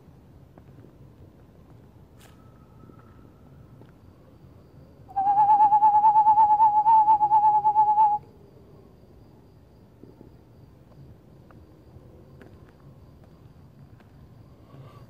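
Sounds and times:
owl quavering trill: 5.1s - 8.2s.

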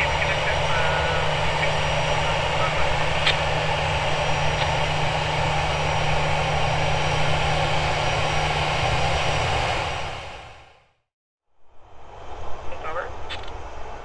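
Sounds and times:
distant jet engines running: 0.0s - 11.0s, 11.6s - 14.0s.

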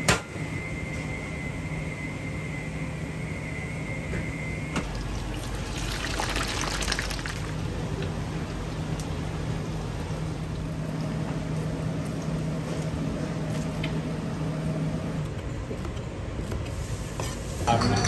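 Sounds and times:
gas burner hum: 0.0s - 6.1s, 7.4s - 18.0s
food deep-frying in oil: 4.8s - 12.8s.

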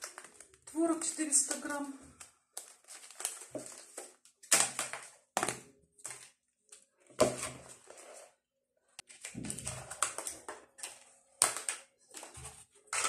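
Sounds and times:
plastic knocks and rustling curds: 7.1s - 7.7s.

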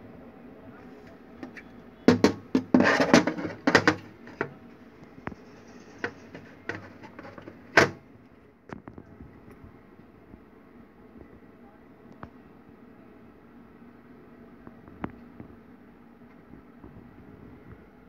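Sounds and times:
plastic device handling clatter: 1.4s - 4.6s, 5.3s - 8.0s.

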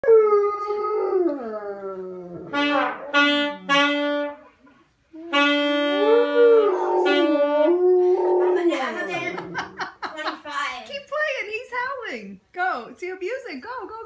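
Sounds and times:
trombone: 2.5s - 4.5s, 5.3s - 7.7s
saxophone: 2.5s - 7.9s
dog howling: 6.0s - 9.0s.

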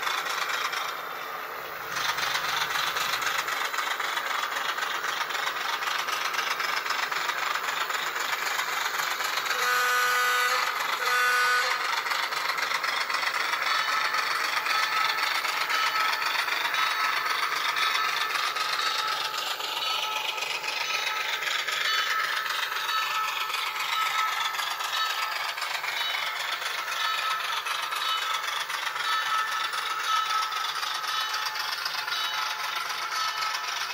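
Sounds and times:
model train diesel engine sound: 0.0s - 33.9s
thin diesel engine sound from speaker: 9.4s - 12.4s
train horn blasts: 9.5s - 11.8s.

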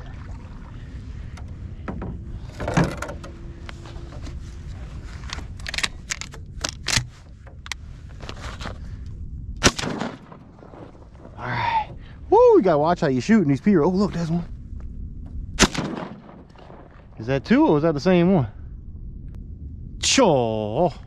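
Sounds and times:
low steady rumble: 0.0s - 21.0s
shotgun sharp clicks: 15.6s - 16.8s.

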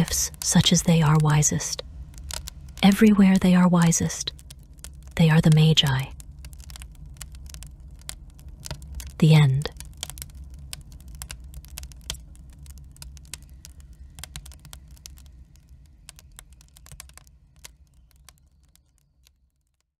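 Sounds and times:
wood fire crackling and popping: 0.0s - 19.9s.

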